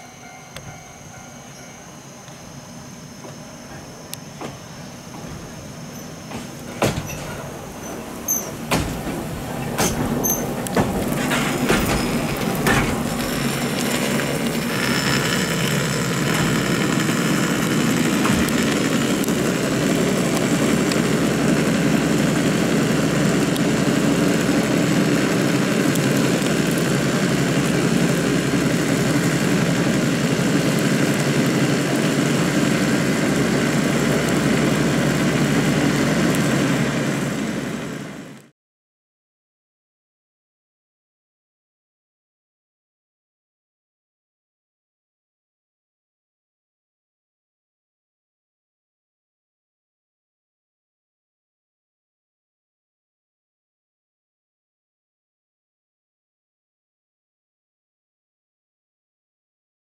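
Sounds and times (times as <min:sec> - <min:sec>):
funicular car running noise: 0:00.0 - 0:38.5
sharp clacks of funicular car: 0:06.3 - 0:14.5.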